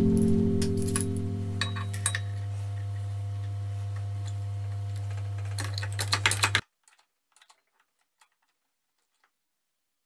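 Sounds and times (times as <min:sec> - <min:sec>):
metallic clinks and rattles: 0:00.0 - 0:02.3
low hum: 0:00.0 - 0:04.1.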